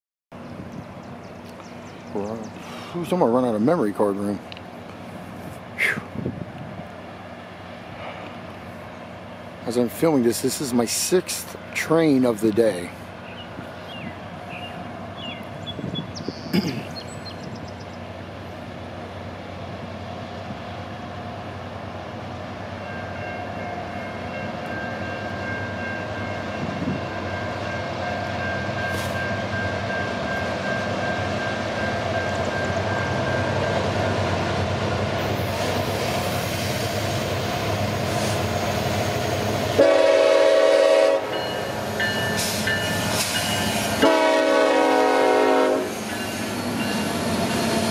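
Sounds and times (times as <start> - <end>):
diesel locomotive and rail noise: 0.3 - 47.9
locomotive horn blast: 39.8 - 41.6, 44.0 - 46.0.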